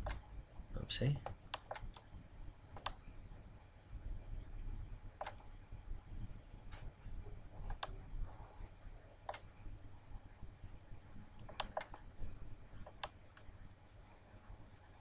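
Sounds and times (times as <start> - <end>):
computer mouse and keyboard clicks: 0.0 - 0.2, 1.2 - 2.1, 2.8 - 3.0, 5.2 - 5.5, 7.6 - 8.0, 9.3 - 9.5, 11.3 - 12.1, 12.8 - 13.5.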